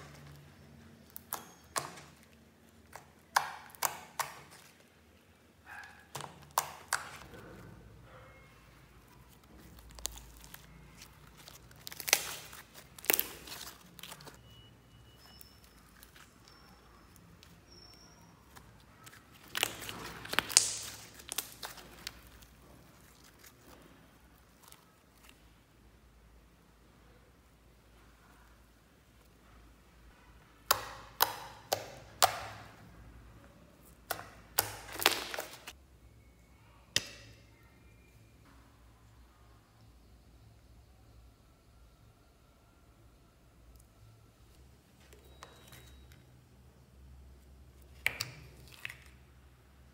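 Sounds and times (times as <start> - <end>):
slime popping and crackling: 0.0 - 4.7, 6.1 - 7.3, 9.0 - 25.4, 33.8 - 35.8, 47.9 - 49.2.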